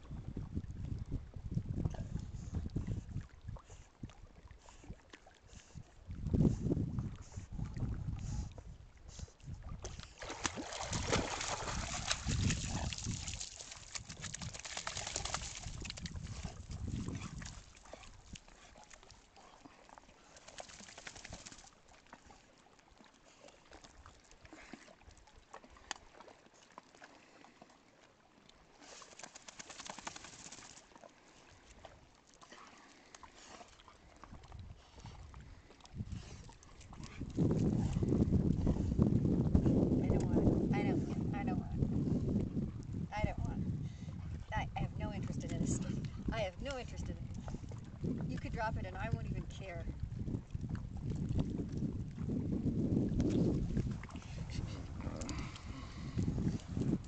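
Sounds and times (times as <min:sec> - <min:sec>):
dog splashing through water: 0:09.8 - 0:22.5, 0:28.7 - 0:31.1.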